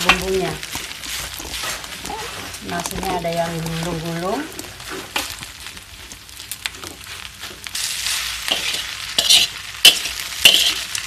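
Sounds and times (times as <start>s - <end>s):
metal spatula scraping a wok: 0.0s - 2.8s, 6.8s - 11.0s
food sizzling: 0.0s - 11.0s.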